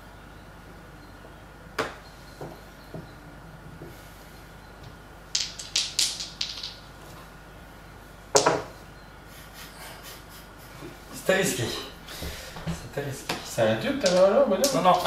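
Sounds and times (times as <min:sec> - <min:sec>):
dice rattling in a hand: 0:05.3 - 0:06.8
dice clattering on a table: 0:05.3 - 0:06.9, 0:14.0 - 0:14.8.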